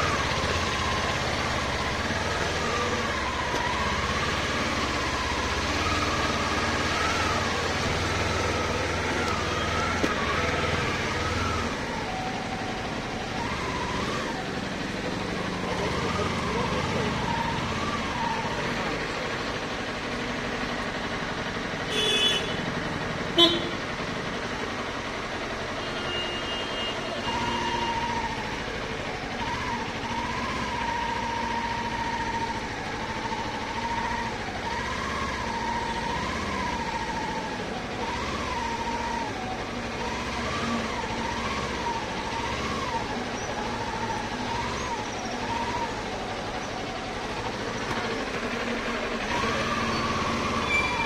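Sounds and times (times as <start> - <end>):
motorcycle engine: 0.0 - 51.0
street traffic: 0.0 - 51.0
vehicle horn honking: 21.9 - 22.6, 23.4 - 23.8, 25.8 - 27.9.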